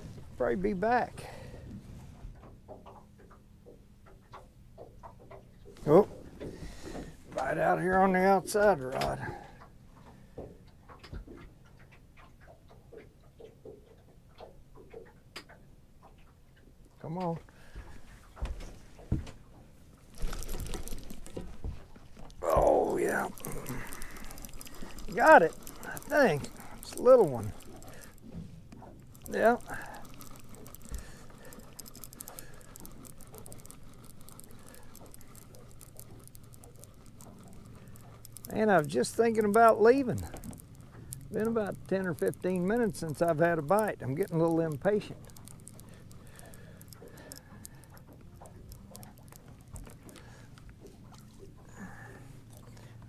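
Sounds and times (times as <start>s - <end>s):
fishing reel clicker ticking: 0.0s - 1.7s, 4.0s - 11.1s, 20.1s - 21.6s, 22.2s - 53.0s.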